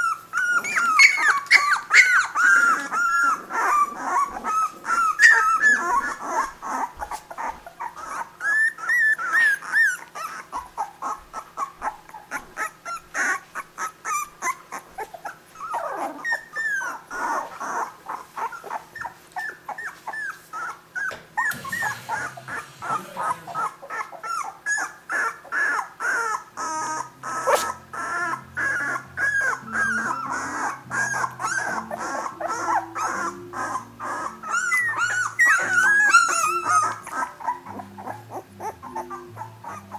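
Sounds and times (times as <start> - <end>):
puppies whimpering and squeaking: 0.0 - 39.9.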